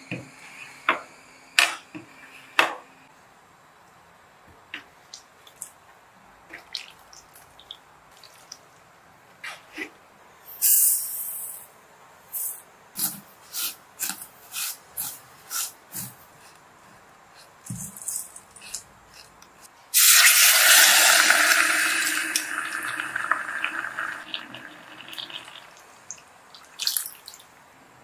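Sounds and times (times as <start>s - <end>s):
loud hiss: 10.5s - 11.7s.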